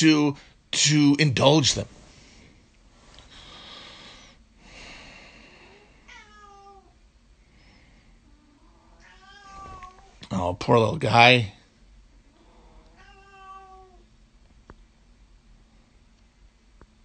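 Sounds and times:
cat meowing: 6.1s - 7.0s, 8.8s - 10.2s, 12.9s - 14.0s.

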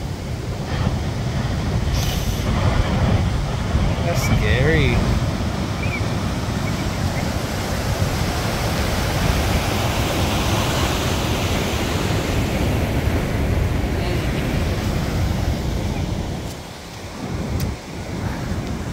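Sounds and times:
ocean surf breaking: 0.0s - 18.9s.

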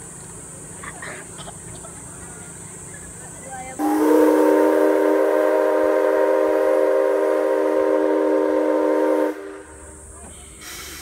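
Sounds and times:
steam hiss: 0.0s - 11.0s
steam locomotive whistle: 3.8s - 9.9s.

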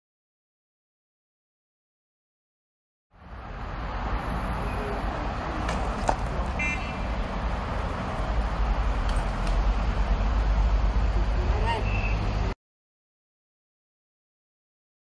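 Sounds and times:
street traffic rumble: 3.1s - 12.6s.

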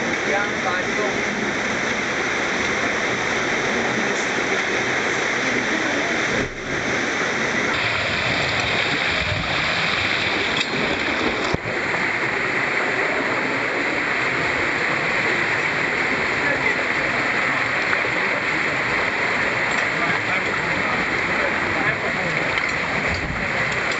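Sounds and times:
rushing water over rocks: 0.0s - 23.9s.

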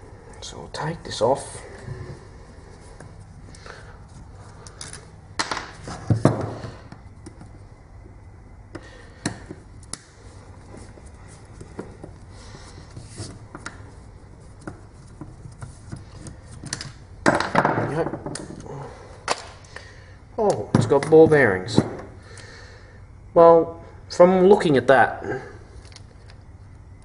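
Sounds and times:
parts clattering: 1.2s - 7.6s, 8.8s - 19.8s.

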